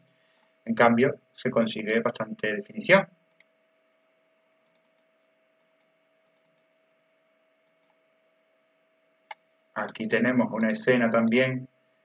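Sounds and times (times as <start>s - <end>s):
faint clicks: 4.6s - 6.7s.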